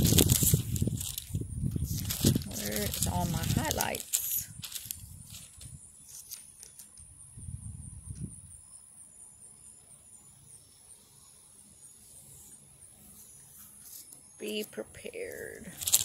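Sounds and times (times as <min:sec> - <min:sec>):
wind rumbling on microphone: 0:00.0 - 0:05.9, 0:07.0 - 0:08.6
soft rustles: 0:00.0 - 0:06.9, 0:12.3 - 0:14.3, 0:15.4 - 0:16.0.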